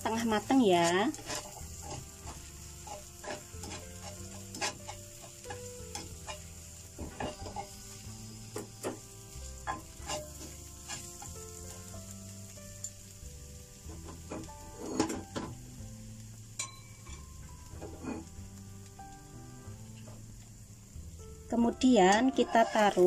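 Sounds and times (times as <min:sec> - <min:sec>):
chopsticks scraping a pan: 0:00.0 - 0:12.1, 0:13.8 - 0:15.6, 0:17.2 - 0:18.4, 0:22.0 - 0:23.0
egg sizzling in a pan: 0:00.0 - 0:23.0.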